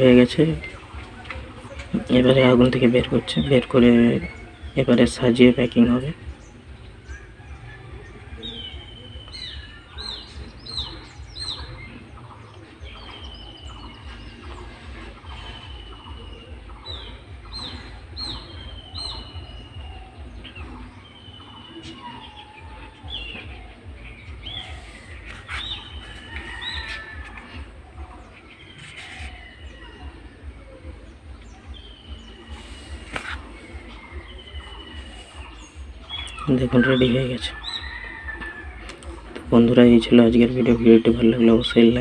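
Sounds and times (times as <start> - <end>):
small birds chirping: 0.0 - 42.0
low pulsing rumble: 6.2 - 36.5.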